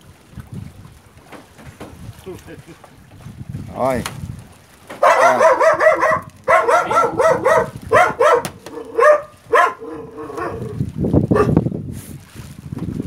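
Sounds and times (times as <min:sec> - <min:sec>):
dog barking and yelping: 0:05.0 - 0:10.8, 0:11.4 - 0:11.6.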